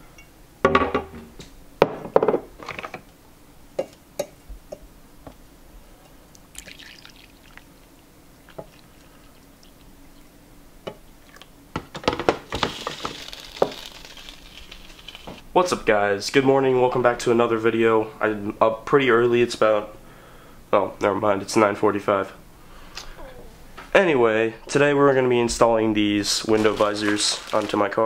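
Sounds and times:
coffee pouring into mug: 6.5 - 7.8, 8.4 - 9.8.

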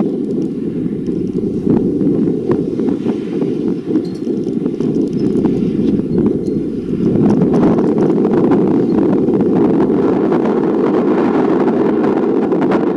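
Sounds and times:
faint clicks: 0.0 - 1.5
wind buffeting microphone: 0.0 - 12.9.

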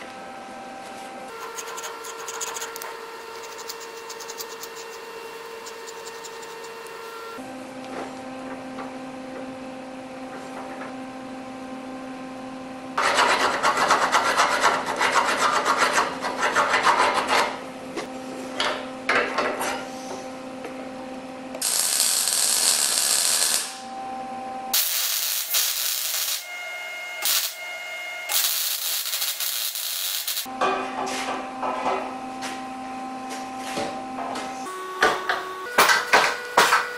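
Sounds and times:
scribe scratching on steel: 1.3 - 7.0
welding arc crackling hiss: 21.6 - 23.8, 24.8 - 26.5, 27.2 - 27.6, 28.3 - 30.5.

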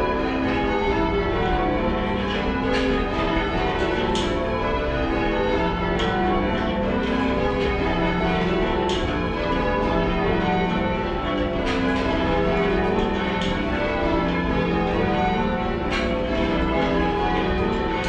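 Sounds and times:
church bells change ringing: 0.0 - 18.0.

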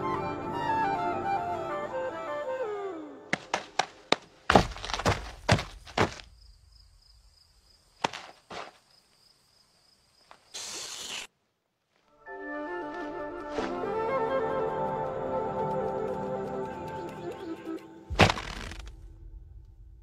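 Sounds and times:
music: 0.0 - 3.4, 12.2 - 19.8
heavy thuds: 3.3 - 6.5
burst of hiss: 10.5 - 11.3.

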